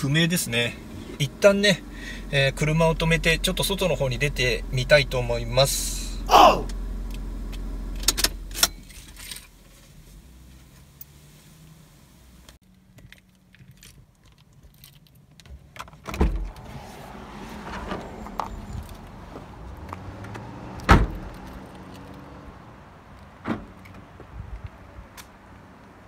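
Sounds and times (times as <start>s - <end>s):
car engine idling: 0.0s - 8.6s.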